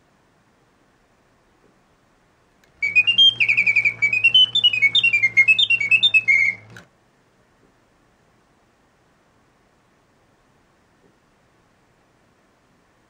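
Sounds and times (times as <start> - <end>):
low steady hum: 0.0 - 13.0
mechanical bird whistle chirping: 2.8 - 6.8.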